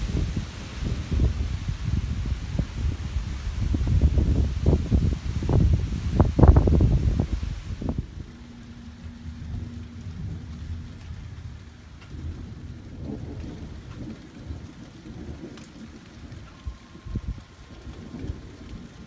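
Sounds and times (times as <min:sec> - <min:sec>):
faint steady hum: 0:00.0 - 0:14.1
distant thunder rumbling: 0:00.0 - 0:19.0.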